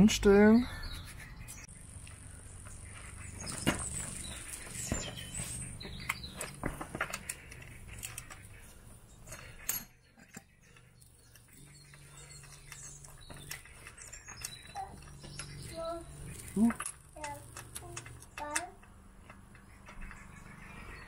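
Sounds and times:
handling clicks and knocks: 3.4s - 8.6s, 9.2s - 20.4s.

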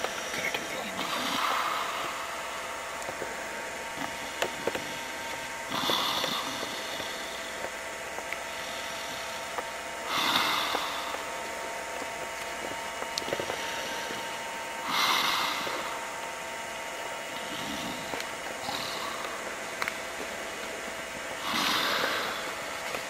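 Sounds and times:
person snoring: 0.8s - 2.4s, 4.0s - 7.6s, 10.0s - 11.3s, 14.8s - 16.0s, 17.3s - 19.4s, 21.4s - 22.7s.

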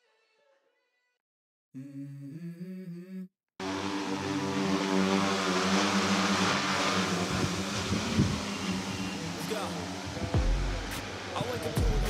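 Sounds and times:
drone rotors humming: 3.6s - 12.0s.

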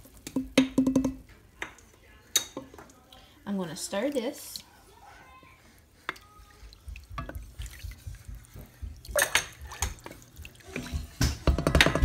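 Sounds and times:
liquid sloshing and splashing: 6.2s - 11.6s
spoon knocking and scraping pot: 6.8s - 12.0s.

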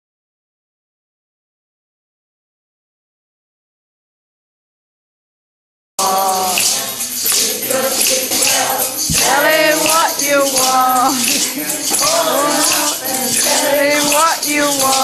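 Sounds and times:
group of voices singing: 6.0s - 15.0s
jingling hand percussion: 6.0s - 15.0s.

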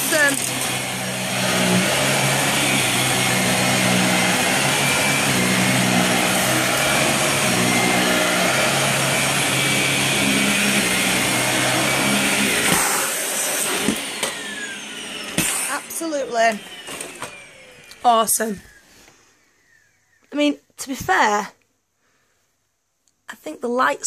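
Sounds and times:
vacuum cleaner running: 0.0s - 19.1s.

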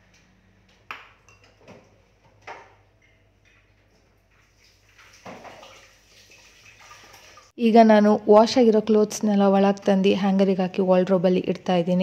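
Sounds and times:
kitchenware clinking on counter: 1.1s - 1.9s
tap water running: 3.4s - 7.6s.

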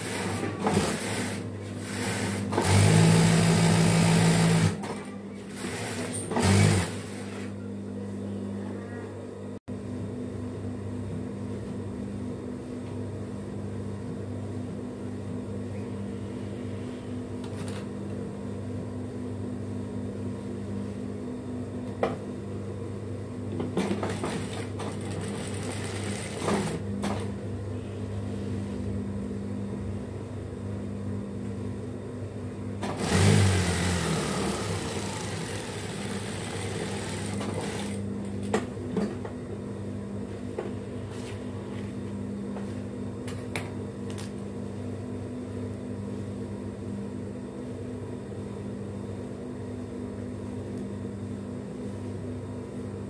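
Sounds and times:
sewing machine stitching: 0.0s - 7.5s, 32.8s - 38.0s.

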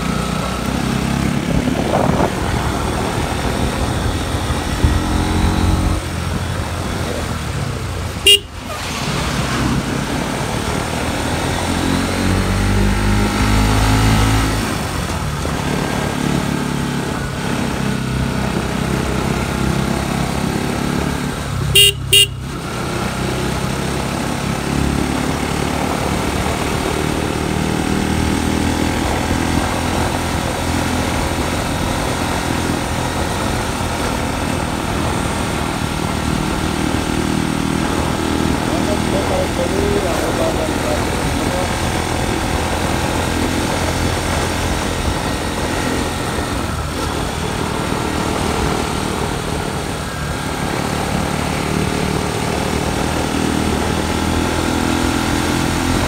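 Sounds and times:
motorcycle engine running: 0.0s - 56.0s
motorcycle horn beeping: 8.2s - 9.0s, 21.6s - 22.6s.

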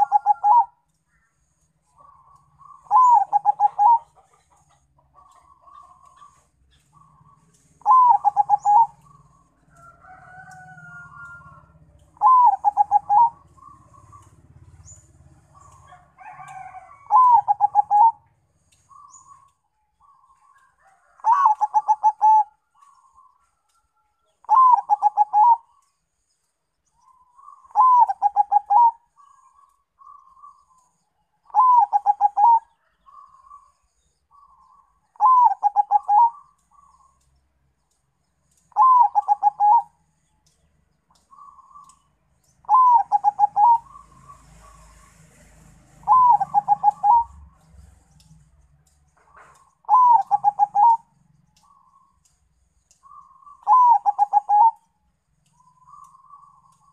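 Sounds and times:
dove cooing: 0.0s - 0.8s, 2.0s - 9.4s, 10.9s - 18.3s, 20.9s - 23.3s, 24.4s - 25.8s, 27.1s - 30.7s, 31.5s - 33.7s, 34.3s - 37.2s, 38.7s - 40.0s, 42.6s - 45.0s, 46.0s - 47.6s, 49.3s - 52.0s, 53.0s - 54.9s.

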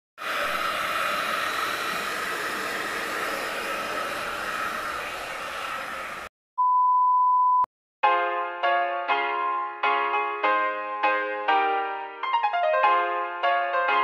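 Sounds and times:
hair dryer blowing: 0.2s - 6.3s
steady test-pattern beep: 6.6s - 7.7s.

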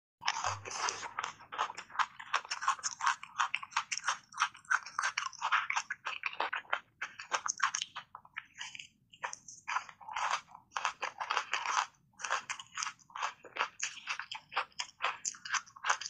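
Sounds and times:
person crunching ice: 0.2s - 5.9s.

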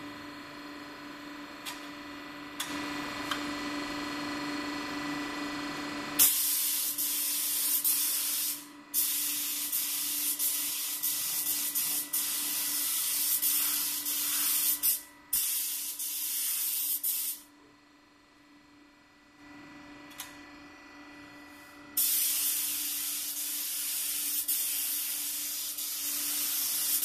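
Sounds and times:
spray gun hissing: 6.3s - 17.4s, 22.0s - 27.0s.

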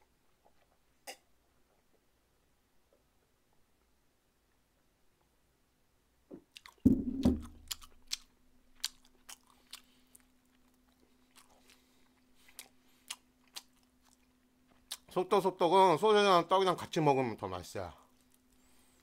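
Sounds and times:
person biting and chewing: 6.5s - 15.1s
glass thumping on table: 6.9s - 7.5s.

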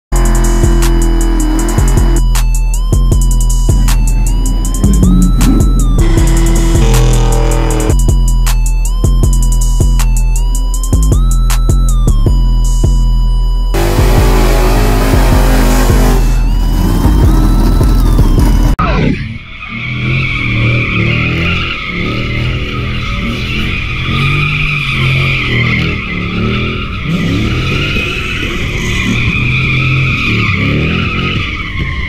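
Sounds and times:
loud intro music: 0.1s - 8.4s, 13.7s - 18.8s
car engine revving: 0.1s - 10.0s, 13.7s - 18.8s, 19.6s - 32.0s.

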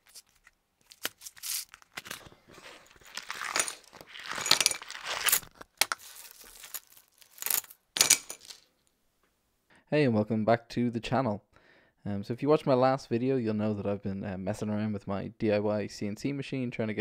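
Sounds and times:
plastic bags crinkling: 0.0s - 8.6s.

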